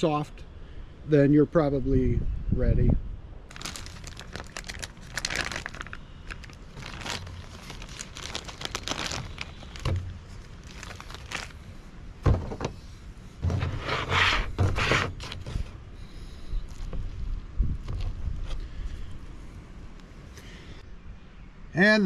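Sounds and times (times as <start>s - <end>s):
plastic bag crinkling: 3.5s - 11.7s
thump: 12.2s - 12.8s.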